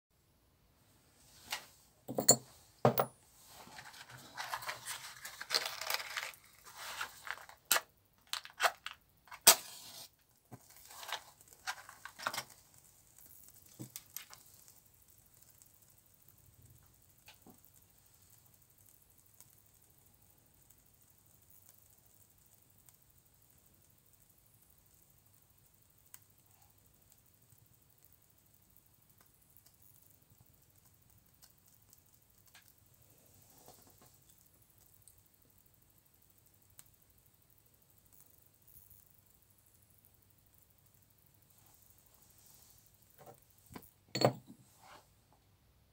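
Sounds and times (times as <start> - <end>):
rustling and scraping: 1.2 - 12.6
glass cap and metal tools clicking: 2.1 - 3.1, 44.2 - 44.6
faint ticks: 12.6 - 43.9.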